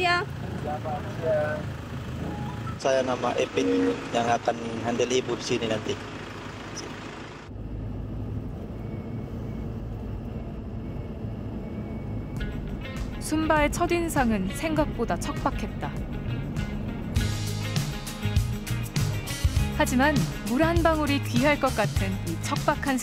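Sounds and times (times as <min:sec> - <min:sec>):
car driving on road: 0:00.0 - 0:23.0
background music with low notes: 0:12.3 - 0:23.0.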